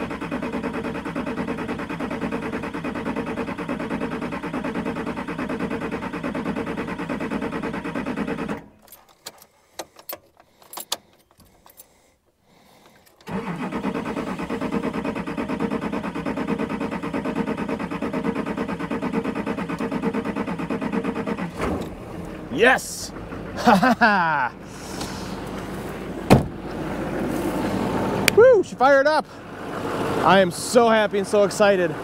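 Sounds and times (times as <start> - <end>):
starter motor cranking engine: 0.0 - 32.0.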